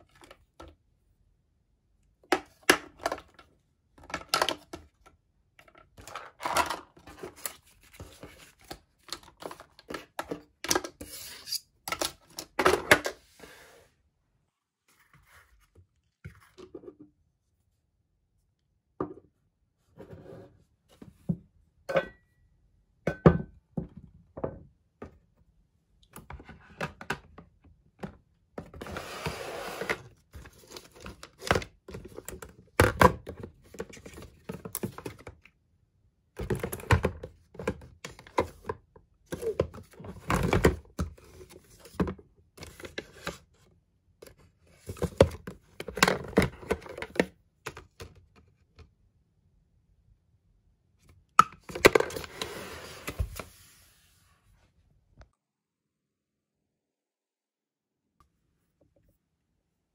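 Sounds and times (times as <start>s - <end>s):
rustling and sliding: 14.8s - 16.6s, 28.7s - 31.0s, 52.0s - 54.9s.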